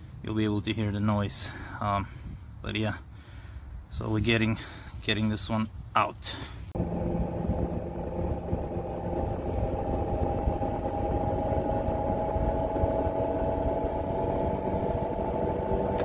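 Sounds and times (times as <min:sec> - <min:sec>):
road and tyre rumble: 0:06.7 - 0:16.0
wheel bearing hum: 0:06.8 - 0:16.0.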